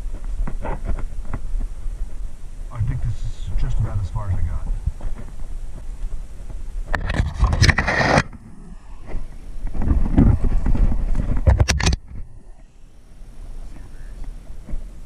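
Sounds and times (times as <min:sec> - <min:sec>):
wind noise on microphone: 0:00.0 - 0:15.0
camera handling noise: 0:06.9 - 0:08.4, 0:09.1 - 0:12.2.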